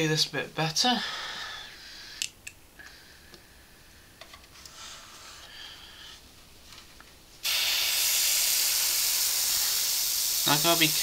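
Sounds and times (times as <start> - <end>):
airbrush hiss: 7.4 - 11.0.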